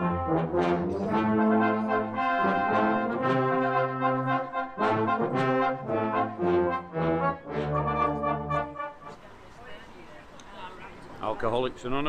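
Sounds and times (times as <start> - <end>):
brass band playing: 0.0 - 9.4.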